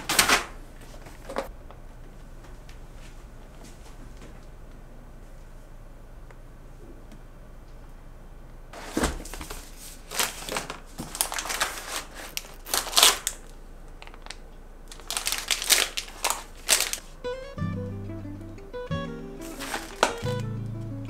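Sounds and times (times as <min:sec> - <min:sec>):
plastic wrappers crinkling: 0:00.0 - 0:01.5, 0:08.8 - 0:17.2, 0:19.4 - 0:20.5
music: 0:17.2 - 0:21.0.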